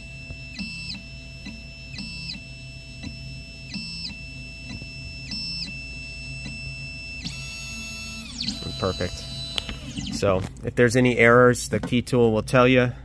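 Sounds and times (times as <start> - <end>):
stepper motors whining: 0.0 - 10.5.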